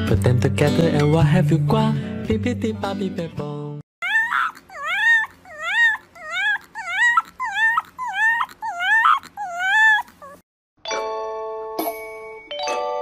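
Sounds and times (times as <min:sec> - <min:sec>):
puppy yelping whines: 0:04.0 - 0:10.4.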